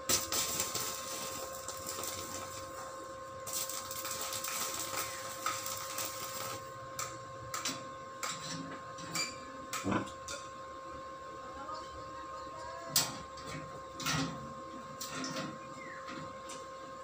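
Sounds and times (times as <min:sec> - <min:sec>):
arc welding crackling: 0:00.0 - 0:08.4.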